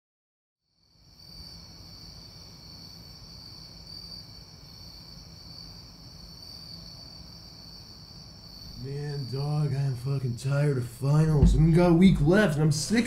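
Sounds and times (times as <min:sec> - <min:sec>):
crickets trilling: 0:00.7 - 0:13.0
faint low rumble: 0:11.0 - 0:13.0.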